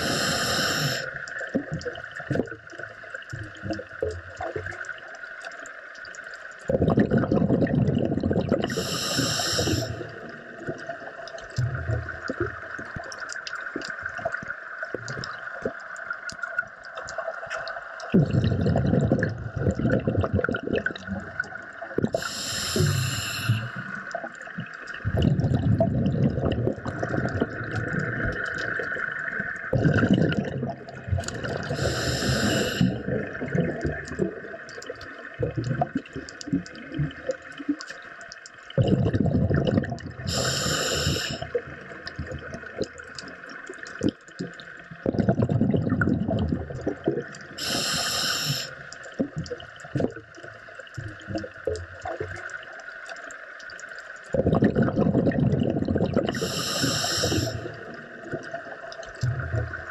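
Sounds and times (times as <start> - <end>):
regulator hiss on inhale: 0.0 - 1.3, 8.7 - 10.3, 22.2 - 24.2, 31.6 - 33.1, 40.3 - 41.6, 47.6 - 49.0, 56.3 - 58.0
exhaled bubbles rushing underwater: 0.0 - 59.9.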